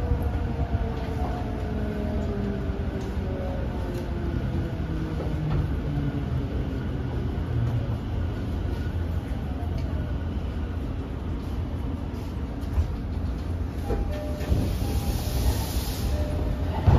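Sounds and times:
electric train rumbling: 0:00.0 - 0:16.9.

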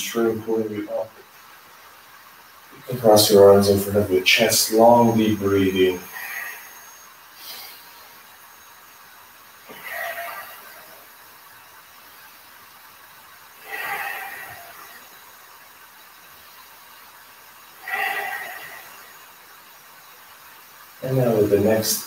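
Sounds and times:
man breathing deeply: 0:06.0 - 0:08.2, 0:13.6 - 0:15.2, 0:17.8 - 0:19.2.

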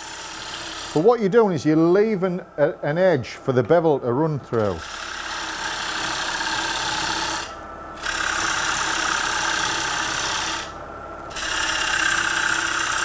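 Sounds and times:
gouge scraping wood on lathe: 0:00.0 - 0:01.1, 0:04.6 - 0:13.0
lathe humming: 0:00.0 - 0:13.0.

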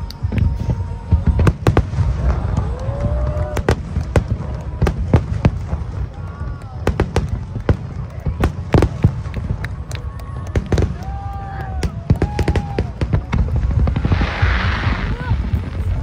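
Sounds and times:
fireworks bangs and cracks: 0:00.0 - 0:16.0
low rumble: 0:08.9 - 0:16.0
fireworks hiss: 0:11.9 - 0:16.0.

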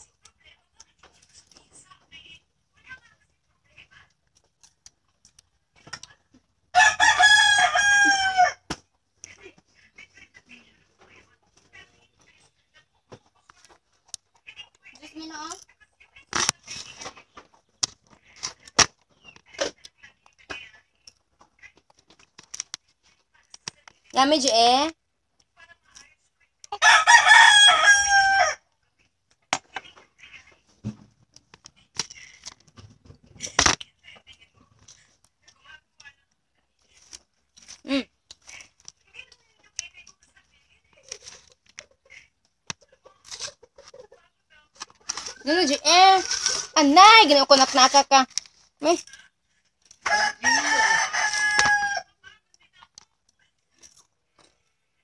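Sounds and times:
rooster crowing: 0:06.8 - 0:08.6, 0:26.8 - 0:28.6, 0:50.0 - 0:52.1
faint clicks and rustles: 0:28.9 - 0:50.0.

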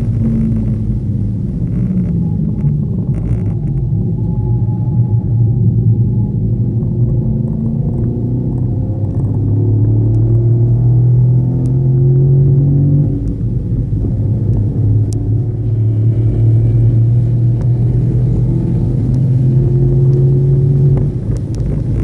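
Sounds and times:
car engine running hard: 0:00.0 - 0:22.0.

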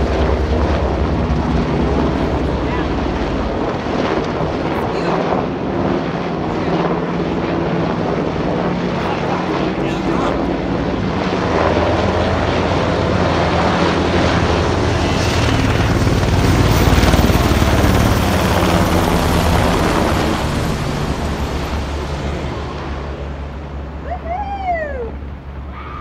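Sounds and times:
helicopter passing overhead: 0:00.0 - 0:26.0.

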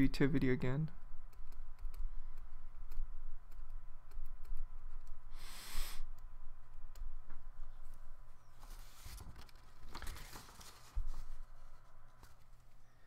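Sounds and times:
low electrical hum: 0:00.0 - 0:13.0
short hiss: 0:05.3 - 0:06.1.

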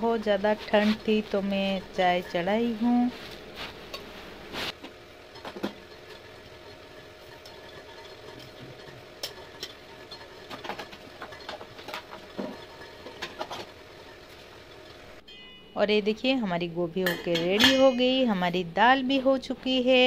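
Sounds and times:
steady low hum: 0:00.0 - 0:20.0
utensil clinking against a pan: 0:17.1 - 0:18.2.

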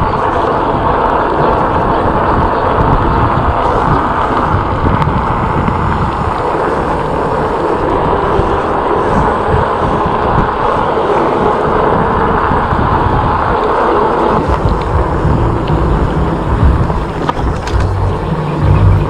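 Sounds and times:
wind rushing over microphone: 0:00.0 - 0:19.0
tyres rumbling on concrete: 0:11.8 - 0:19.0.

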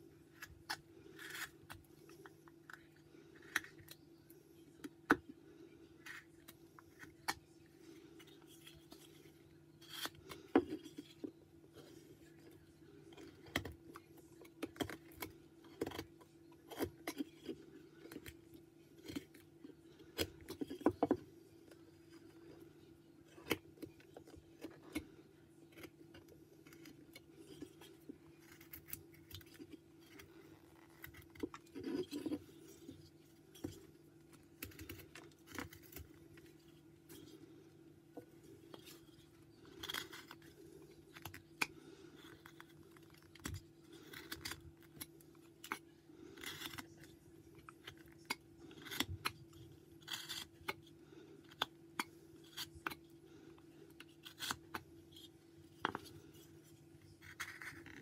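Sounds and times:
faint steady hum: 0:00.0 - 0:58.0
knife carving wood: 0:00.3 - 0:04.1, 0:08.1 - 0:22.6, 0:23.3 - 0:37.4, 0:38.5 - 0:58.0.

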